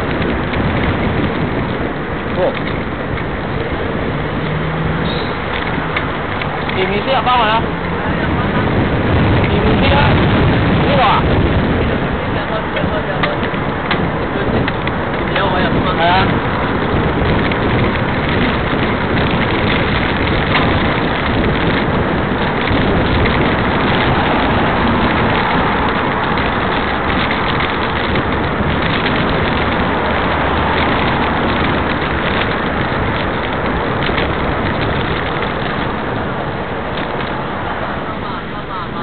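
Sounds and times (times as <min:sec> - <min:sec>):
road noise: 0:00.0 - 0:39.0
wind noise: 0:00.0 - 0:39.0.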